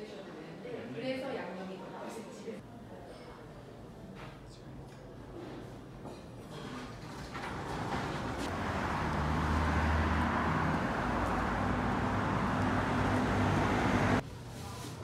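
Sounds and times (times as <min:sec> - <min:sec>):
road traffic noise: 0:07.3 - 0:14.2
low engine hum: 0:08.2 - 0:14.2.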